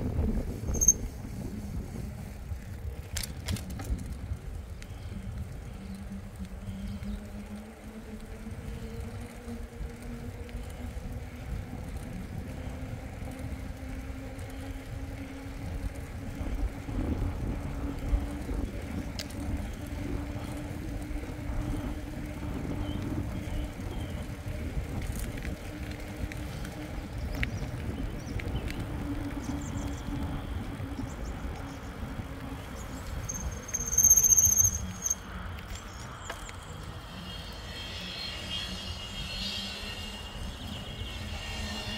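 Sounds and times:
bike tyres humming on pavement: 0.0s - 41.9s
low wind: 0.0s - 41.9s
road rumble: 0.0s - 41.9s
high-pitched squeal: 33.0s - 41.9s.

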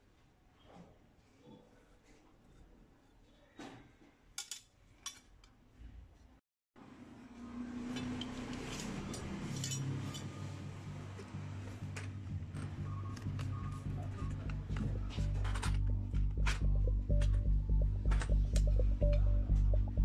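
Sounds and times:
metal mower blades clinking: 8.0s - 10.4s
background music with low tone: 9.9s - 20.0s.

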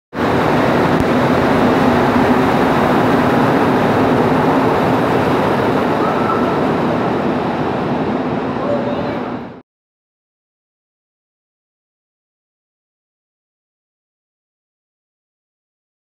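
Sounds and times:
subway train rumbling past: 0.1s - 9.6s.

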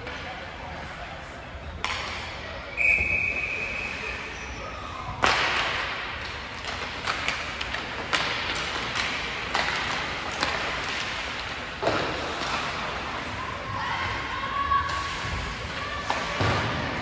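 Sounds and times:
hockey sticks cracking on puck: 5.2s - 13.4s.

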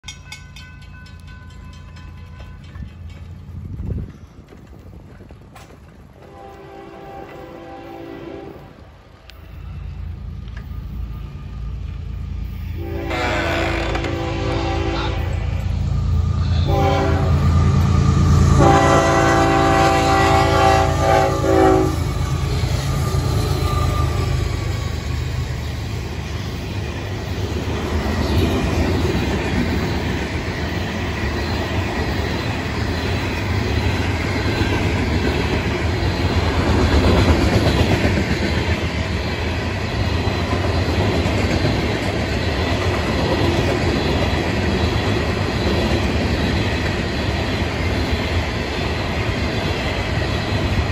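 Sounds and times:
train wheels clattering on rails: 0.0s - 8.0s, 16.7s - 50.9s
diesel locomotive rumble: 0.3s - 50.9s
train horn blast: 6.2s - 8.9s, 12.7s - 22.2s.

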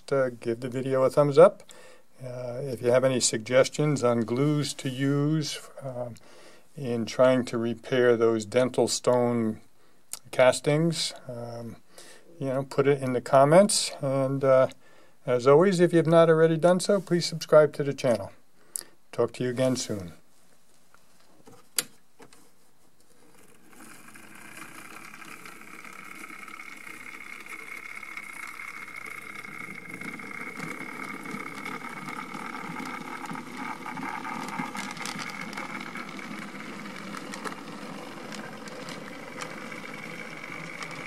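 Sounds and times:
model train motor whine: 23.3s - 41.0s.

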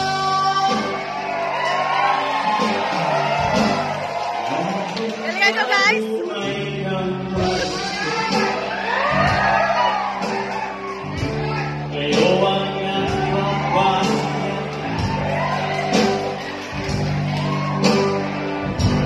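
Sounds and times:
man singing into microphone: 0.0s - 1.2s, 2.5s - 8.7s, 11.8s - 15.2s
live band with guitar and drums: 0.0s - 19.0s.

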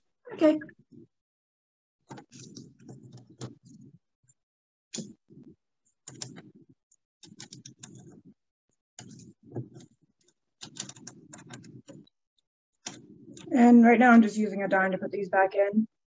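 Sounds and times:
rapid small clicks and taps: 2.1s - 4.0s, 5.0s - 8.4s, 9.0s - 12.2s, 12.8s - 13.5s.

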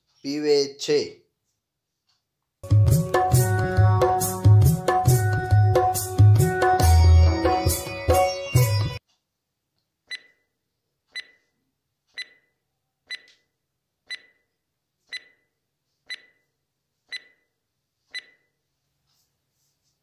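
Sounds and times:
short timer beeps: 10.1s - 10.5s, 11.1s - 11.5s, 12.2s - 13.4s, 14.1s - 14.5s, 15.1s - 15.5s, 16.1s - 16.5s, 17.1s - 17.5s, 18.1s - 18.6s.

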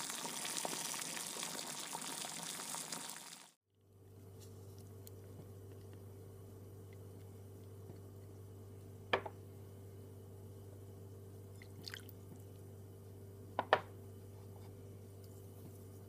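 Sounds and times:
low steady hum: 3.7s - 16.0s.

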